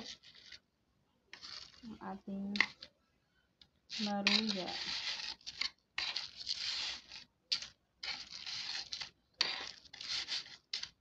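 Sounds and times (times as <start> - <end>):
metal tongs scraping on a plate: 3.9 - 10.9.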